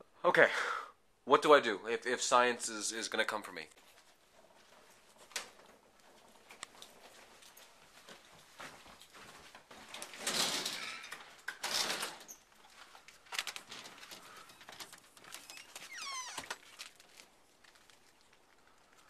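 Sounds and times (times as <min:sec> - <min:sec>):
rustling handling noise: 0:03.7 - 0:19.0
door squeak: 0:10.5 - 0:12.5, 0:15.3 - 0:16.6.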